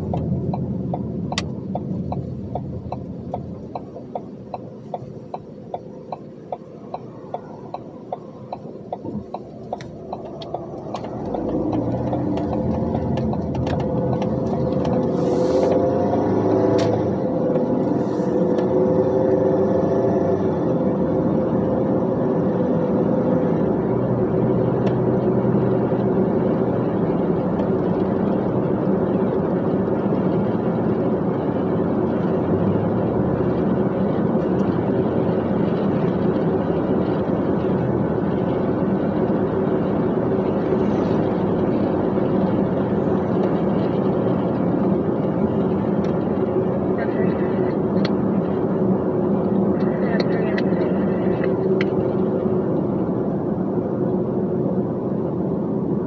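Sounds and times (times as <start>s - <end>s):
regular ticking: 0.0s - 15.1s
diesel truck engine running: 0.0s - 56.0s.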